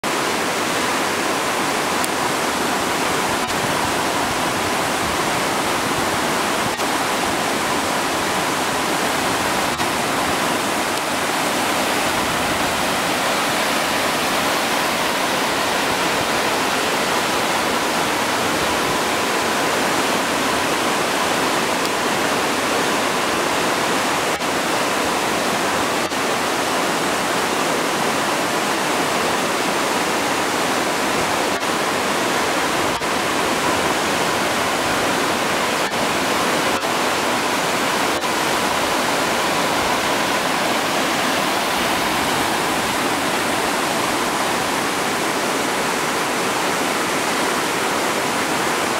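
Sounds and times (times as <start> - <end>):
waterfall rushing: 0.0 - 48.9.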